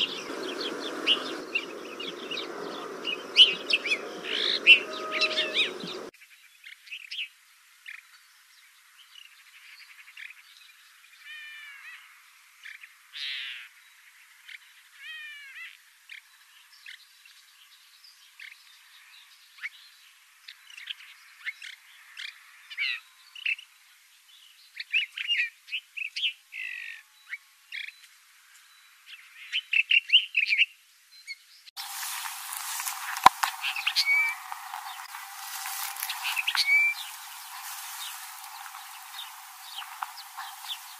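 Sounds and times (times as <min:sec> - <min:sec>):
finch chirping and twittering: 0:00.0 - 0:06.1, 0:31.8 - 0:40.9.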